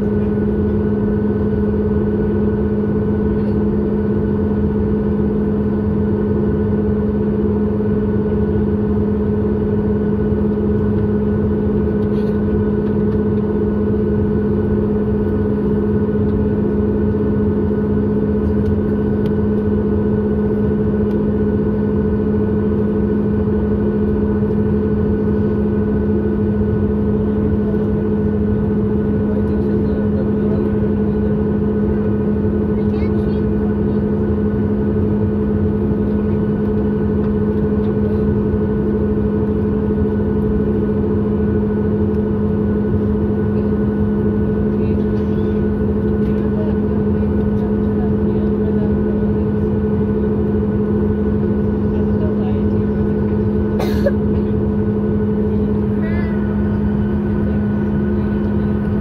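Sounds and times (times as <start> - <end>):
aircraft cabin engine rumble: 0.0 - 59.0
higher engine hum: 0.0 - 59.0.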